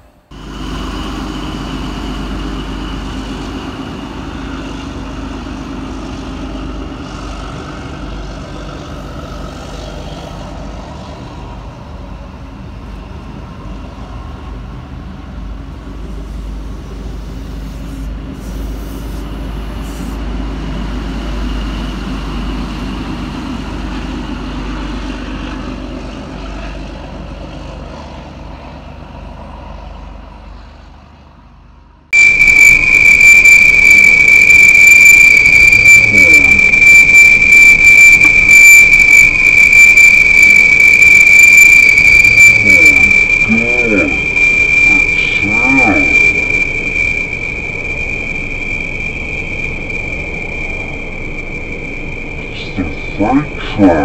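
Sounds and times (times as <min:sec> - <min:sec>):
train rumbling past: 0:00.0 - 0:32.1.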